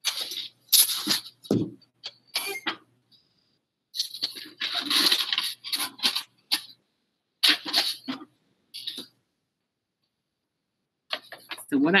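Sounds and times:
rustling of materials handled: 4.0s - 6.7s.

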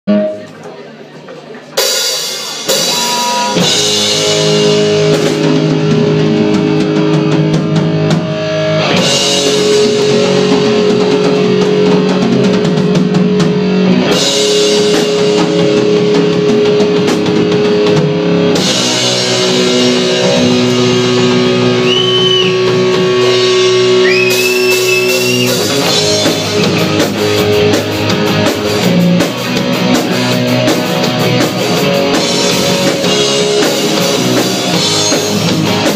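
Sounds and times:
drum kit: 0.1s - 35.9s
electric guitar: 1.8s - 35.9s
electric bass: 2.6s - 35.9s.

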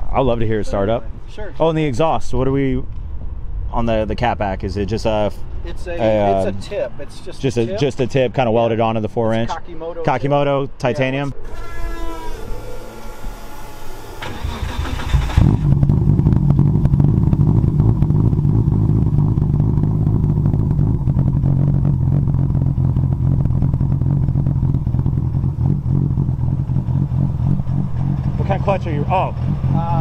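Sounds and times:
car starter cranking: 11.4s - 15.8s
car engine idling: 11.4s - 30.0s.

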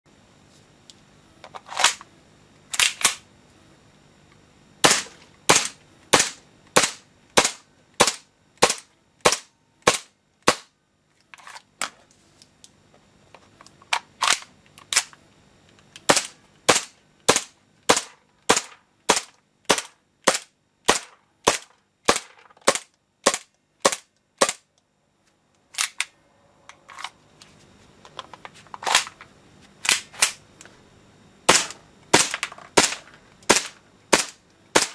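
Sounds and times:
airsoft pistol shots cracking: 4.8s - 10.7s, 31.5s - 34.9s.

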